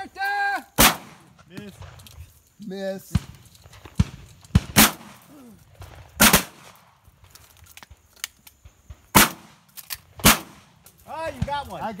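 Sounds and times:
shotgun shots: 0:00.8 - 0:02.0, 0:03.1 - 0:06.9, 0:08.8 - 0:11.9.

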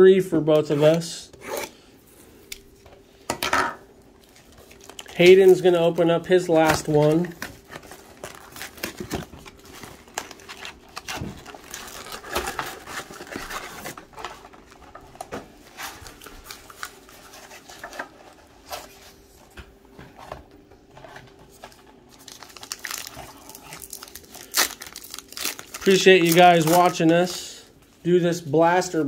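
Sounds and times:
plastic wrapper crinkling: 0:04.1 - 0:18.9, 0:21.5 - 0:27.4
card pack tearing open: 0:06.6 - 0:14.8, 0:22.1 - 0:27.4.

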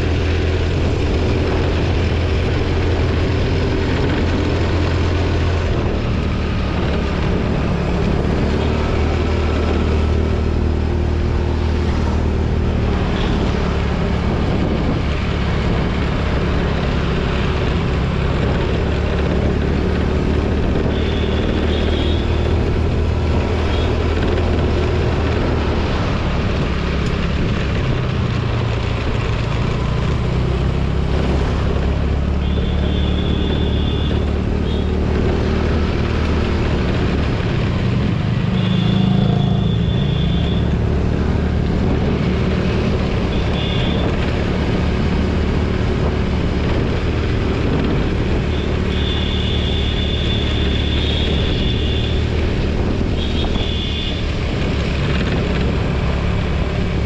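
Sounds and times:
wind rushing over microphone: 0:00.0 - 0:21.2, 0:34.1 - 0:39.8, 0:40.6 - 0:48.9, 0:51.2 - 0:57.0
scooter engine running: 0:00.0 - 0:57.0.

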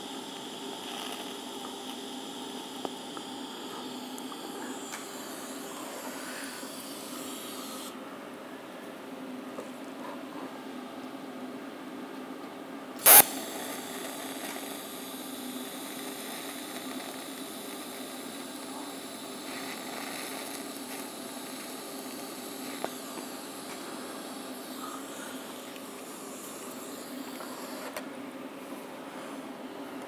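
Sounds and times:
welding arc crackle: 0:00.0 - 0:07.9, 0:13.0 - 0:28.0
welding arc hissing: 0:00.0 - 0:08.0, 0:13.0 - 0:28.0.

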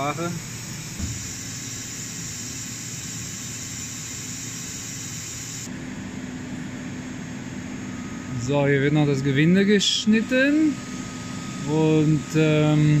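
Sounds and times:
milling machine hiss: 0:00.0 - 0:05.7
machine low hum: 0:00.0 - 0:13.0.

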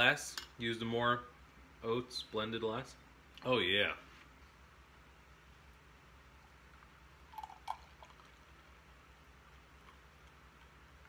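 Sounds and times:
milk pouring into a glass: 0:07.2 - 0:08.7.

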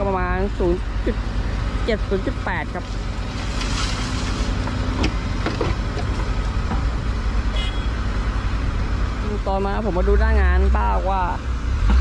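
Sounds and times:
excavator diesel engine running: 0:00.0 - 0:12.0
soil pouring into truck bed: 0:03.3 - 0:04.6.

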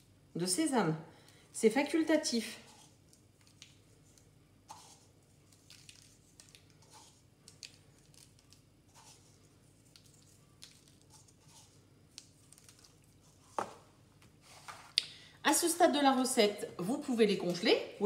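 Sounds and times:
sesame seeds ticking: 0:02.7 - 0:13.4.

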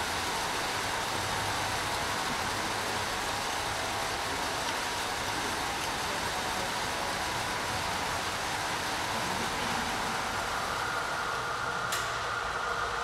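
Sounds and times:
exercise bikes whirring: 0:00.0 - 0:13.0
steady hum: 0:08.2 - 0:13.0.

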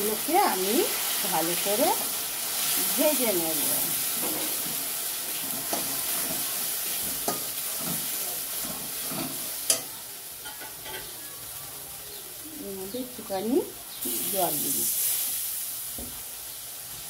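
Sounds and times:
paste sizzling in a pan: 0:00.0 - 0:17.0
spatula scraping a pan: 0:03.6 - 0:11.2.

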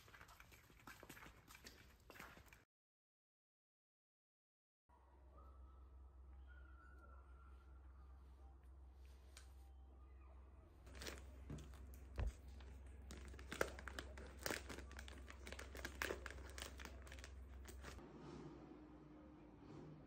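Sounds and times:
low steady hum: 0:04.9 - 0:20.0
plastic bag crinkling: 0:10.9 - 0:18.0.

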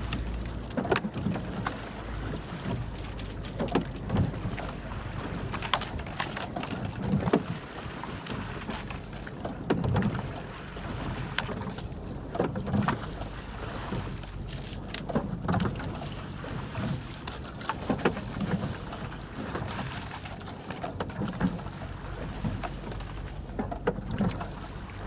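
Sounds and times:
light wind: 0:00.0 - 0:25.0
oars splashing through water: 0:00.0 - 0:25.0
water wash: 0:00.0 - 0:25.0
oars knocking in oarlocks: 0:02.5 - 0:07.6, 0:16.8 - 0:18.9.

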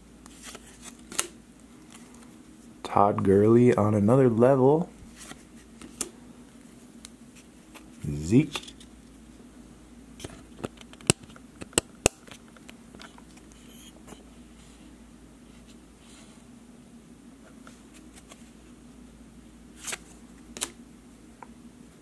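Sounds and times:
faint steady hum: 0:00.0 - 0:22.0
trading cards clicking and snapping: 0:00.4 - 0:01.4.

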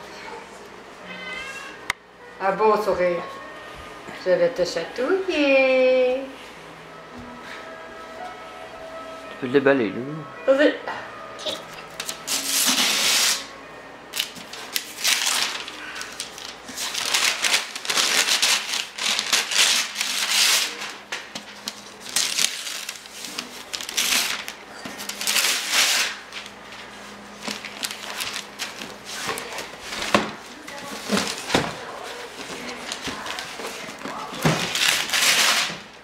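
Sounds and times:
wrapping paper tearing: 0:11.8 - 0:13.5, 0:14.1 - 0:36.0.

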